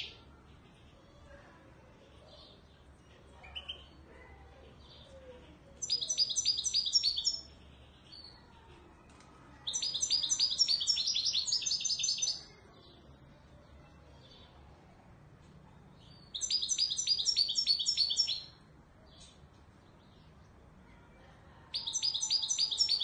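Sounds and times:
goldfinch singing: 0:05.8 - 0:07.5, 0:09.7 - 0:12.4, 0:16.3 - 0:18.5, 0:21.7 - 0:23.0.

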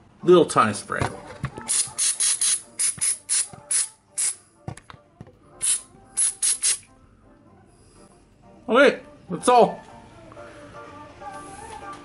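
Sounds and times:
aerosol spray hissing spurts: 0:01.7 - 0:04.4, 0:05.6 - 0:06.9.

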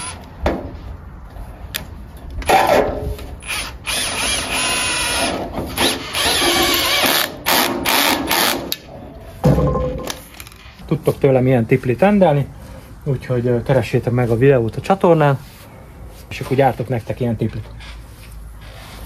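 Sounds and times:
cordless drill running: 0:03.4 - 0:07.3.

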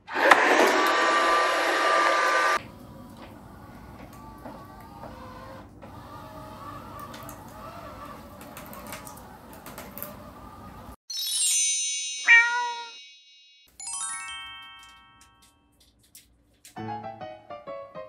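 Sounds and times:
robot mop motor whirring: 0:03.6 - 0:10.6
sparkling chime jingle: 0:11.1 - 0:15.7
cat meow: 0:12.3 - 0:13.0.

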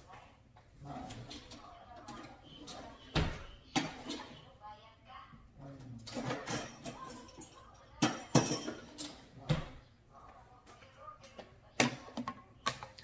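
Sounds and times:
kitchen utensils clinking: 0:06.0 - 0:09.7.

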